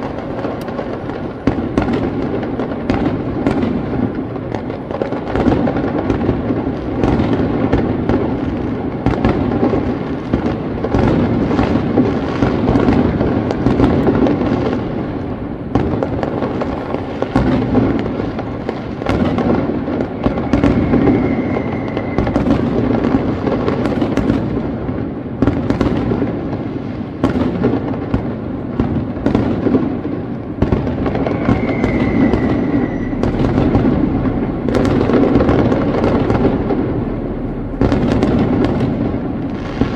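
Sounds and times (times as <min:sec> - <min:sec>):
fireworks crackling: 0:00.0 - 0:39.9
firework shells bursting: 0:15.6 - 0:24.5, 0:29.0 - 0:39.9.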